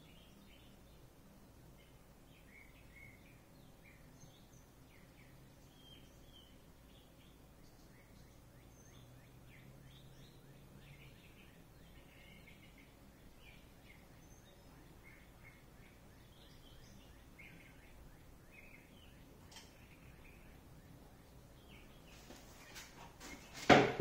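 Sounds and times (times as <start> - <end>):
faint bird chirps: 0.0 - 23.7
faint low hum: 0.0 - 24.0.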